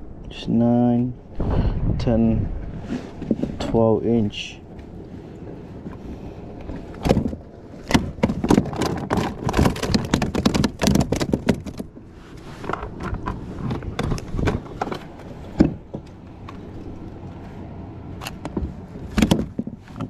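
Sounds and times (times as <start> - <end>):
loud thump: 1.4 - 3.6
gear clattering on kayak deck: 6.6 - 17.4, 18.2 - 20.0.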